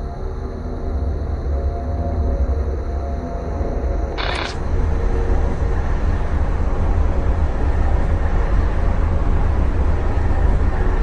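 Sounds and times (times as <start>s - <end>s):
rough hiss: 4.2s - 4.6s.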